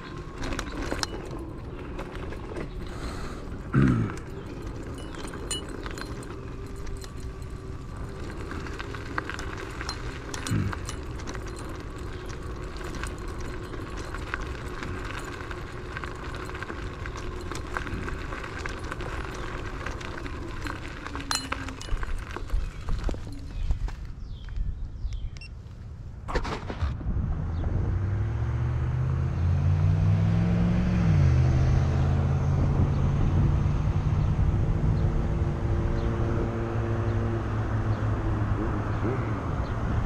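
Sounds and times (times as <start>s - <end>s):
small clicks and rattles: 0.0s - 24.1s
electric scooter motor whine: 0.0s - 24.5s
road rumble: 0.0s - 40.0s
wind: 0.0s - 40.0s.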